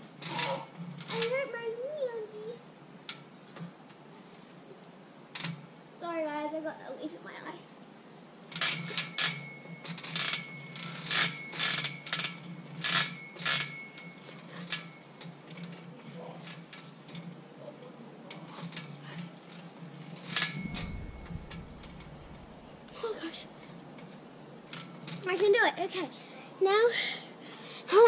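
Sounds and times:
metal monkey bars clanking: 8.6s - 16.6s, 20.2s - 22.8s.

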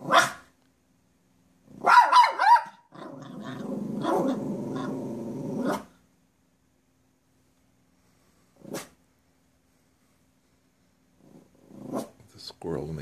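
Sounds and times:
dog yipping: 0.0s - 0.5s, 1.8s - 3.2s, 5.6s - 5.9s
dog growling low: 3.0s - 5.8s, 11.2s - 12.1s.

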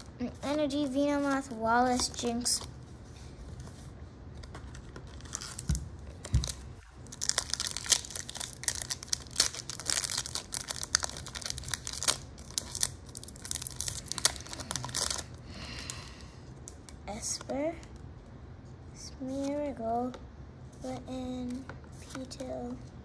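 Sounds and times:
foil wrapper tearing and crinkling: 5.1s - 5.8s, 6.4s - 15.4s.

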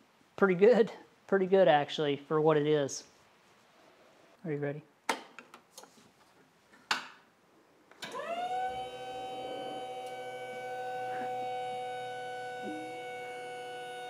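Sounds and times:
hydraulic pump motor whine: 8.0s - 14.0s.

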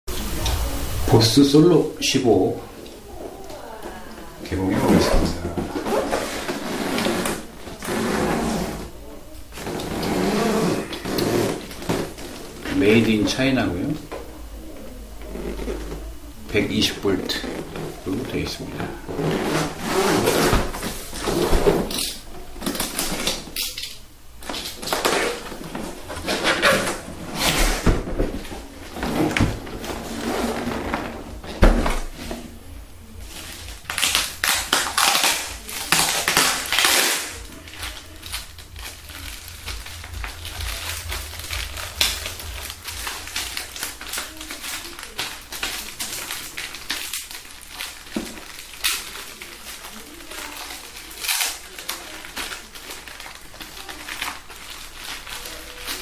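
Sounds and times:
cardboard and plastic rustling: 2.7s - 14.2s, 15.2s - 56.0s.

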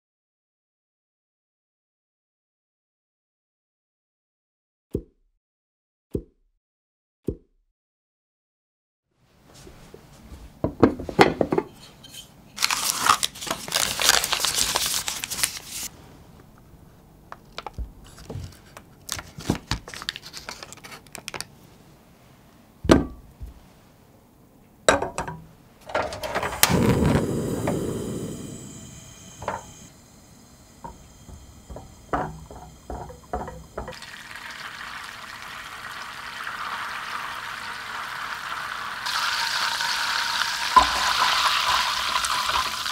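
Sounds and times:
butter sizzling: 26.2s - 42.9s
knife clinking on saucepan: 31.7s - 34.0s.

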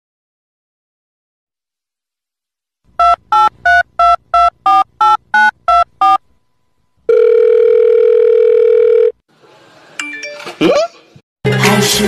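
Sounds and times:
telephone line tone: 7.1s - 9.2s.

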